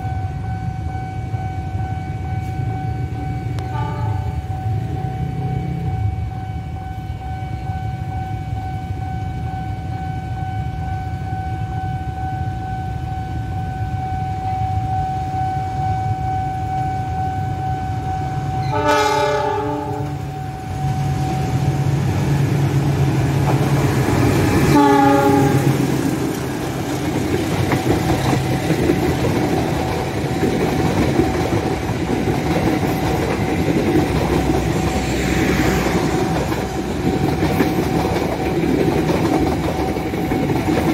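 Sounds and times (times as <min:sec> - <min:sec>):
train rumble and wheel clatter: 0:00.0 - 0:40.9
locomotive horn blasts: 0:03.6 - 0:04.5, 0:18.2 - 0:20.6, 0:24.7 - 0:25.9.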